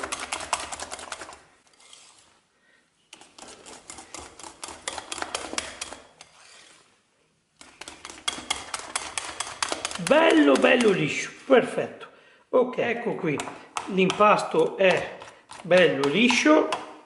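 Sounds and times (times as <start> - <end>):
whisk clicking against bowl: 0.0 - 1.4, 3.2 - 6.3, 7.6 - 11.1, 13.4 - 17.0.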